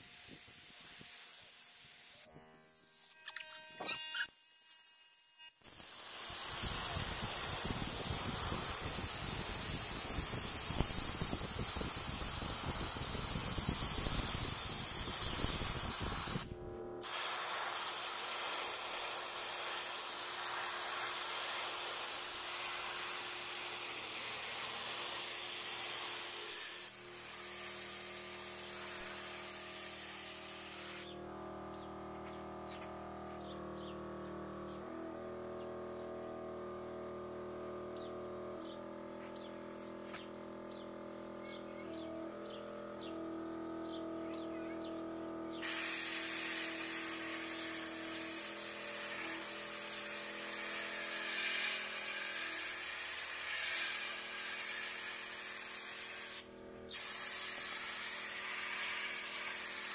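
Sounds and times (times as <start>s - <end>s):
paint spray gun hissing: 0.0s - 2.3s, 5.6s - 31.2s, 45.5s - 59.9s.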